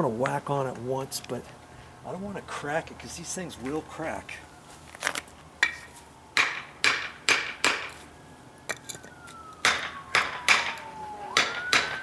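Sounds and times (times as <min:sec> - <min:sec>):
faint siren wailing: 0:02.1 - 0:06.8, 0:07.7 - 0:12.0
hammer knocking wooden block: 0:11.4 - 0:12.0.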